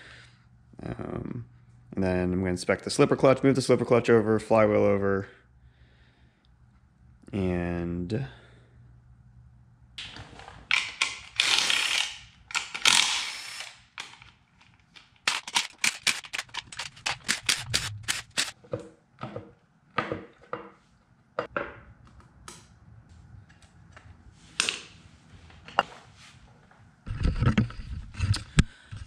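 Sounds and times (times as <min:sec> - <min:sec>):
cordless driver running: 0:15.3 - 0:18.5.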